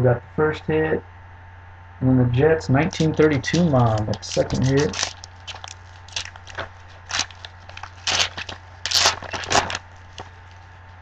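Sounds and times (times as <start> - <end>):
low electrical hum: 0.0 - 11.0
foil wrapper tearing and crinkling: 2.9 - 10.7.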